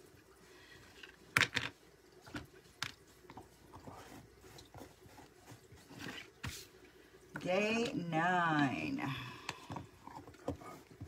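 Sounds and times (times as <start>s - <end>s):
plastic tubs clicking and tapping: 1.0s - 4.0s.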